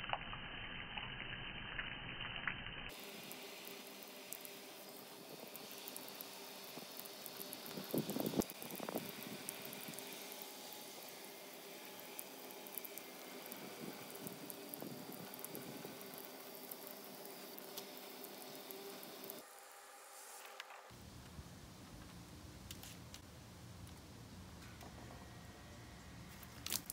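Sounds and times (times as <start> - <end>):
water pouring and splashing: 0.0 - 19.4, 26.5 - 26.9.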